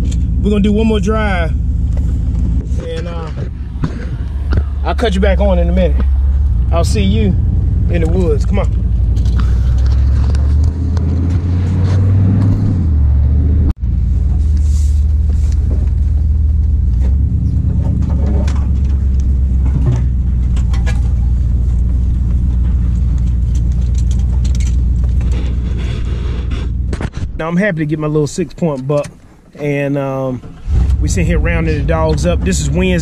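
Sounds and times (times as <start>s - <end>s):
truck engine drone: 0.0s - 33.0s
knocks and rattles: 15.6s - 27.3s.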